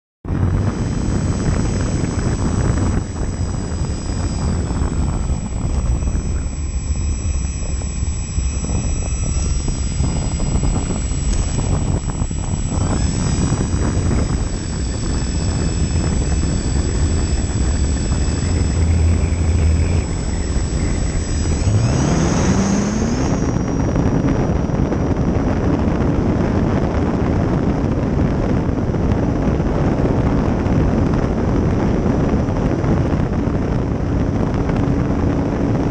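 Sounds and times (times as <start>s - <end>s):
wind rushing over microphone: 0.2s - 35.9s
electric motor and propeller whine: 0.3s - 35.9s
wheels rumbling on runway: 0.3s - 35.9s.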